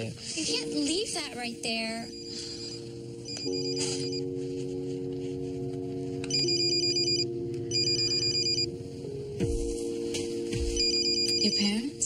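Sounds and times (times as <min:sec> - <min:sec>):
phone ringing electronic trill: 0:02.0 - 0:04.3, 0:06.3 - 0:08.7, 0:10.8 - 0:11.7.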